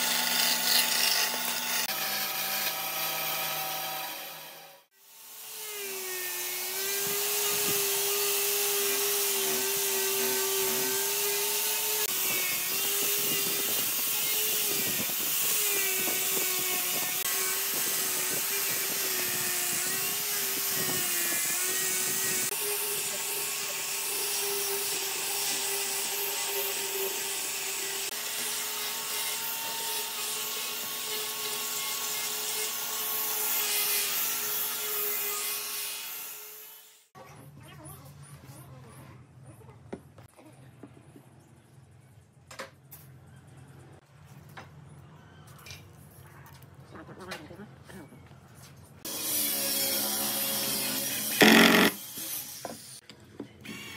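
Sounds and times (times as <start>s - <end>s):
angle grinder sanding wood: 0.0s - 37.1s, 49.0s - 53.0s.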